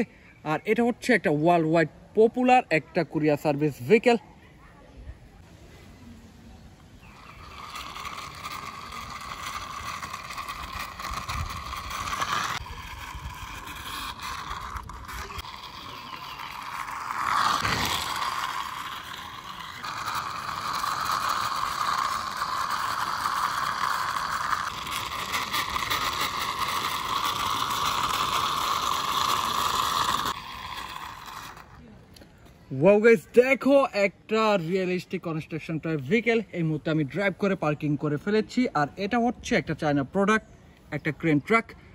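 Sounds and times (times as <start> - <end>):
toy truck wheels whirring: 6.9 - 32.5.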